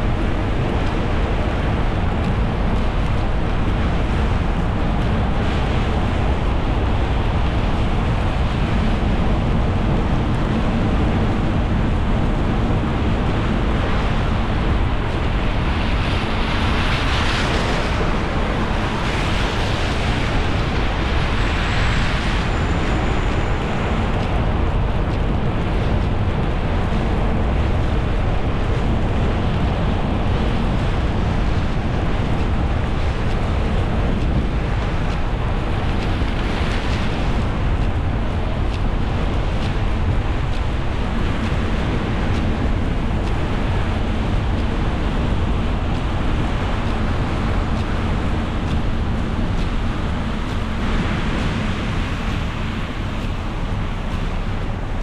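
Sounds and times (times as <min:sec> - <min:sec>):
tyre noise on wet road: 0:12.1 - 0:55.0.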